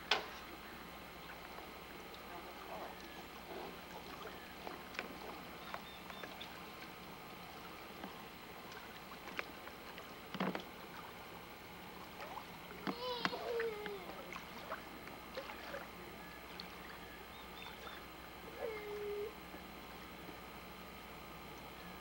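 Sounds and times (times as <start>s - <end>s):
faint water hiss: 0.0s - 22.0s
small clicks and knocks on boat: 7.9s - 11.1s, 12.7s - 14.1s.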